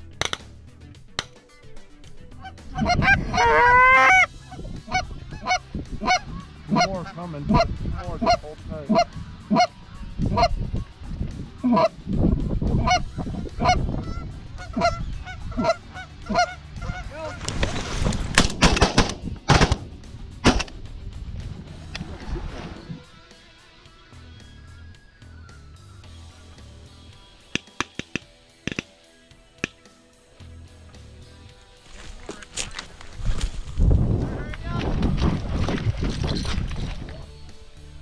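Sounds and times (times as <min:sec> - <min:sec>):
sharp crack: 0:00.1 - 0:01.4, 0:17.3 - 0:20.9, 0:27.6 - 0:28.9
geese honking: 0:02.2 - 0:11.0, 0:11.6 - 0:12.0, 0:12.6 - 0:17.9.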